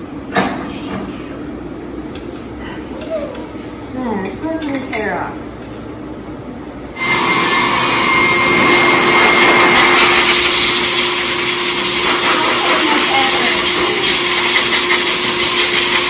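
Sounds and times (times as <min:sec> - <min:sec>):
dog dryer blowing air: 0:07.0 - 0:16.0.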